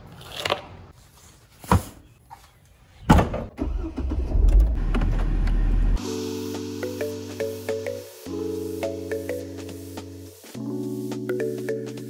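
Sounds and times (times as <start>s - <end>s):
car engine starting and idling: 3.5s - 6.0s.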